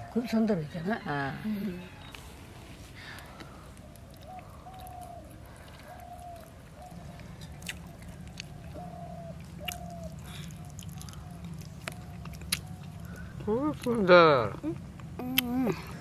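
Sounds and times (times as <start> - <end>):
people chewing and biting: 3.1 - 16.0
bird calling: 3.3 - 13.5.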